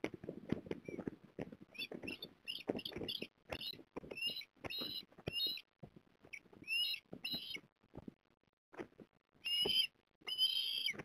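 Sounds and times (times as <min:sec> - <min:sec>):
osprey whistled calls: 0:01.7 - 0:05.7, 0:06.3 - 0:07.6, 0:09.4 - 0:11.0.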